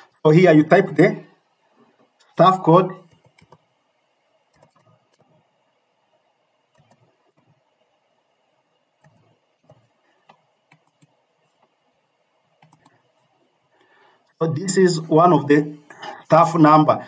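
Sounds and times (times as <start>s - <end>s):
computer keyboard typing clicks: 3.1s - 3.6s, 4.5s - 5.3s, 6.7s - 7.5s, 9.0s - 11.1s, 12.6s - 13.0s.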